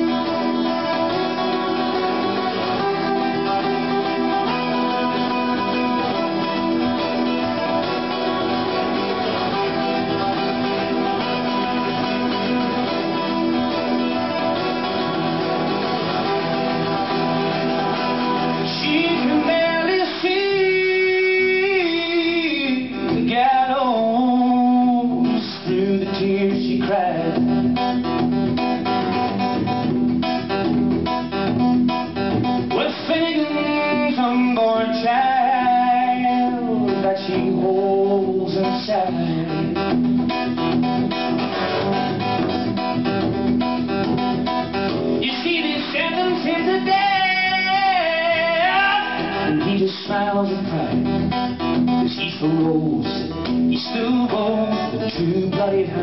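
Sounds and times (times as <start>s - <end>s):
acoustic guitar strumming: 0.0s - 56.0s
man singing: 16.9s - 28.0s, 32.6s - 40.1s, 45.2s - 56.0s.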